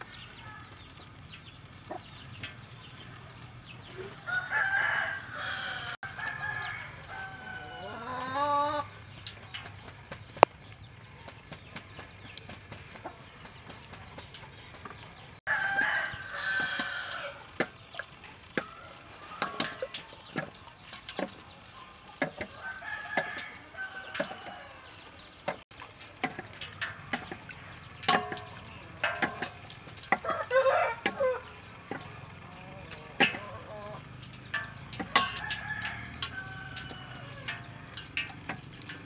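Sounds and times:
chickens clucking: 0.0 - 39.0
rooster crowing: 4.0 - 8.9, 15.5 - 17.5, 22.5 - 25.2, 30.2 - 31.6, 35.1 - 38.0.

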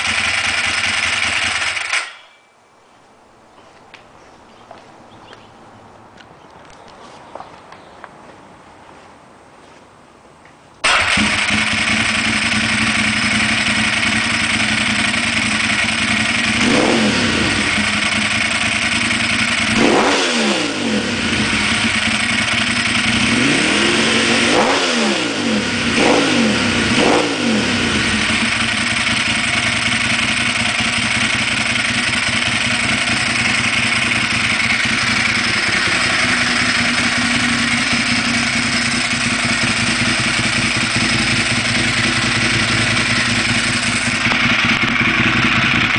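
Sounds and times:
motorcycle engine idling: 0.0 - 2.3, 10.9 - 24.4, 25.4 - 45.9.

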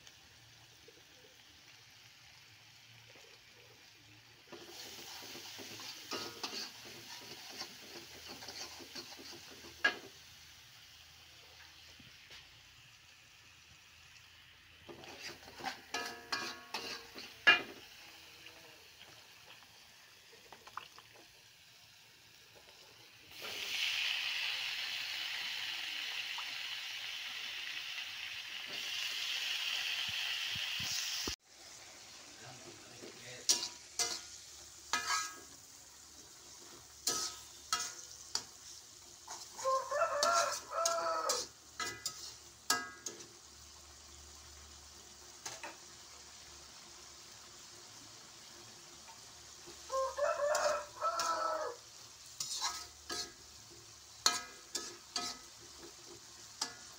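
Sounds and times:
frying sizzle: 0.0 - 56.9
metal spatula scraping a wok: 4.5 - 10.2, 14.8 - 18.0, 33.0 - 43.5, 45.4 - 45.9, 49.0 - 56.9.

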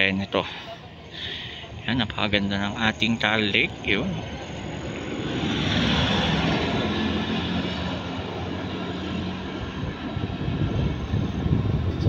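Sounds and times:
vehicle engine passing: 1.2 - 12.0.

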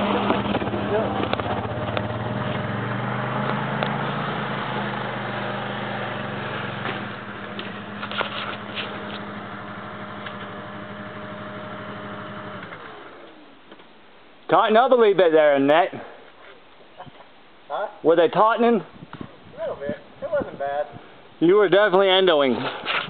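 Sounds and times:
engine idling: 0.0 - 13.5.

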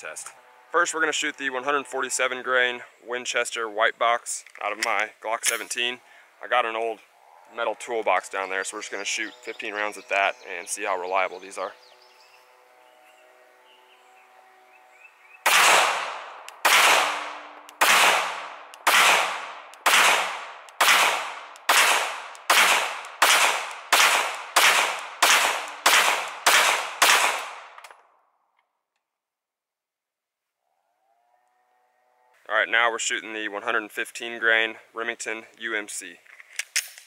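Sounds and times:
pistol shots echoing: 15.4 - 27.8.

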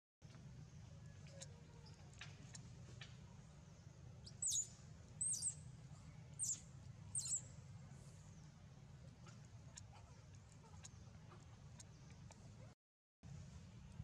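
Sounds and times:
faint low hum: 0.2 - 14.0
high-pitched chirping calls: 4.2 - 5.6, 6.4 - 7.5.

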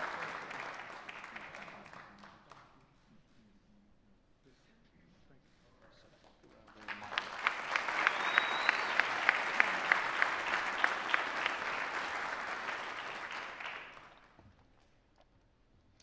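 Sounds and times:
audience applause: 0.0 - 2.6, 6.7 - 14.4
loud sharp claps close by: 0.0 - 2.8, 6.7 - 14.4.

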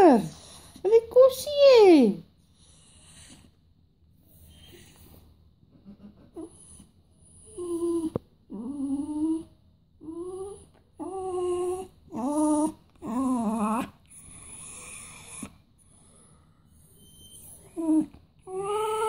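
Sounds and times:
dog whining: 4.3 - 15.6, 16.8 - 19.0.

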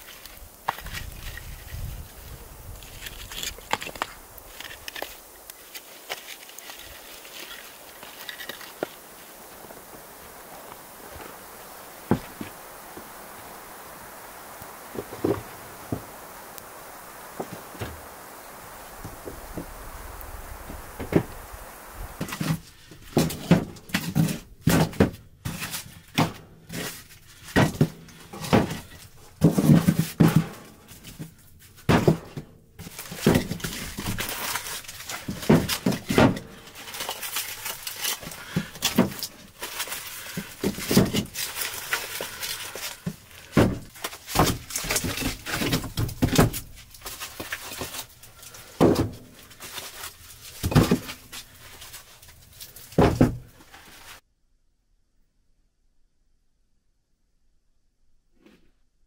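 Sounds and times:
rustling and handling noise: 0.0 - 54.2
wooden logs knocking together: 31.9 - 51.6, 52.4 - 53.8.

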